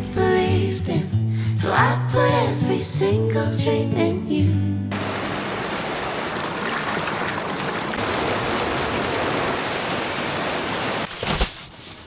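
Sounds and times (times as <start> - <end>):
river water rushing: 4.9 - 11.1.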